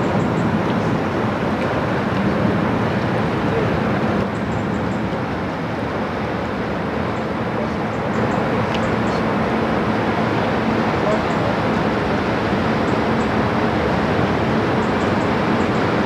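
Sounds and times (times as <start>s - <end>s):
ship diesel engine drone: 0.0s - 16.0s
rushing noise: 5.0s - 16.0s.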